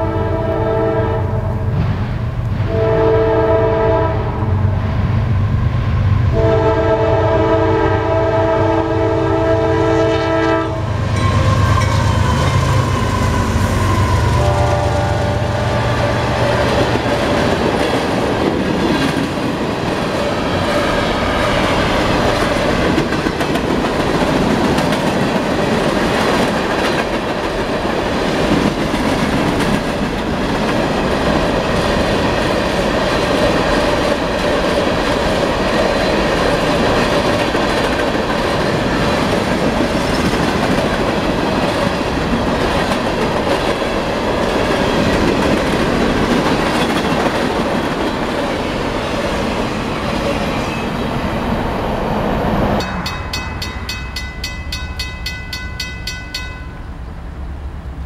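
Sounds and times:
freight train wheels rumbling: 0.0 - 58.0
locomotive multi-chime horn: 6.4 - 16.4.

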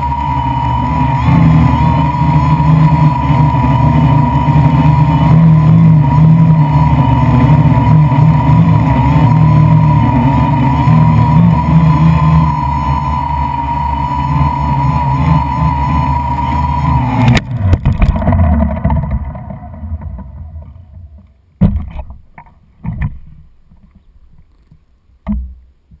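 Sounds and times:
drone propellers buzzing: 0.0 - 22.1
drone crashing into grass: 17.2 - 22.2.

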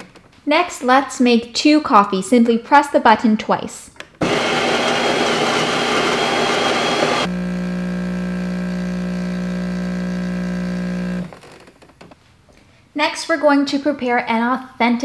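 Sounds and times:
brewing pump humming: 4.2 - 11.4
coffee grinder running: 4.2 - 11.4.

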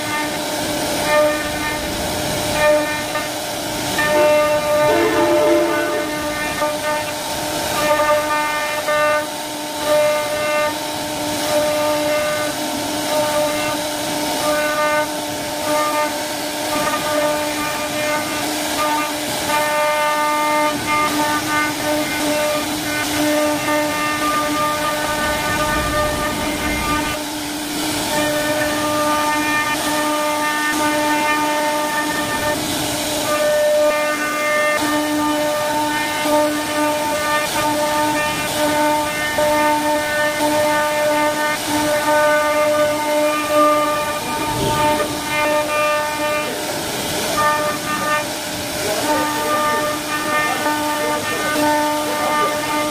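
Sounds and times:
higher machine tones: 3.9 - 7.4, 43.5 - 46.3
router spindle whine: 43.5 - 46.4.

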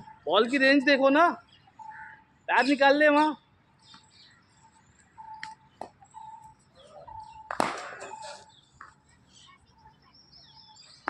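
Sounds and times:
birds chirping: 0.0 - 11.0
bat striking ball: 7.5 - 8.4.

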